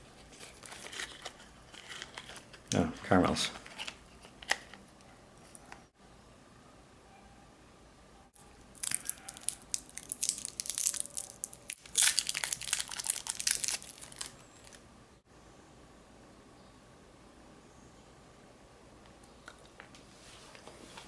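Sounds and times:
plastic wrapper crinkling: 0.3 - 2.7, 8.7 - 14.8.

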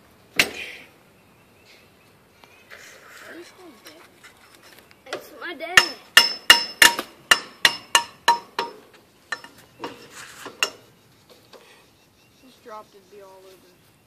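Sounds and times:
hammering on metal: 5.1 - 10.0.

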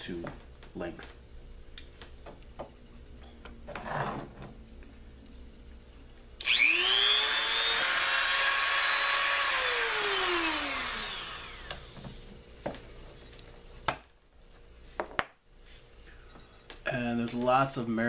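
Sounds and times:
rotary tool high whine: 5.2 - 12.5.

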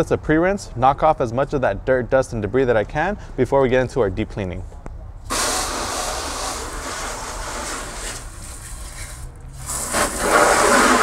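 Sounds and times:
hose water spraying: 5.3 - 11.0.

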